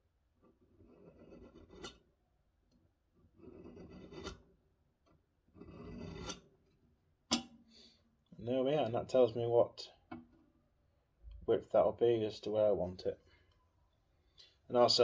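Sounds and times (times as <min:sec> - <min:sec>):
scriber scratching steel plate: 0:00.4 - 0:02.0, 0:03.3 - 0:04.6, 0:05.5 - 0:06.6.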